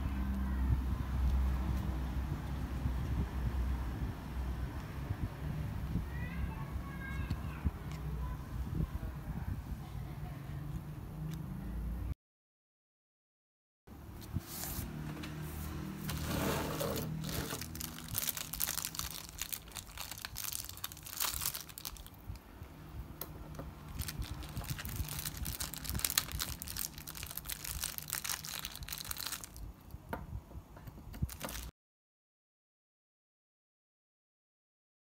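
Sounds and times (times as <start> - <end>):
plastic bags crinkling: 16.1 - 22.4, 23.8 - 29.6, 31.3 - 31.7.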